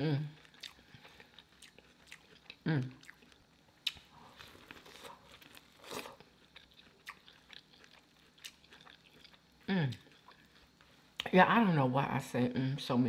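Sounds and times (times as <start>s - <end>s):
wet chewing clicks: 0.4s - 4.1s, 5.3s - 11.3s
person humming: 2.6s - 3.0s.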